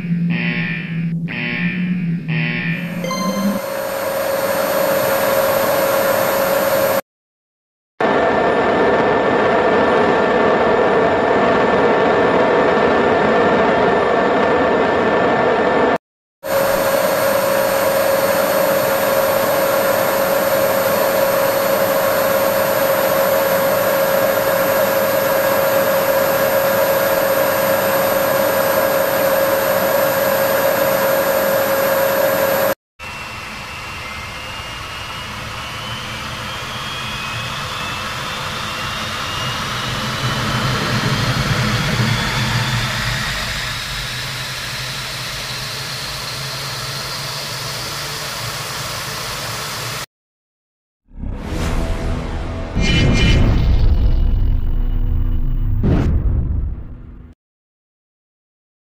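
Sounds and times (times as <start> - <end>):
jet engine rising whine: 2.8 - 7.0, 8.0 - 50.1, 51.1 - 55.9
jet engine whine: 2.8 - 7.0, 8.0 - 50.1.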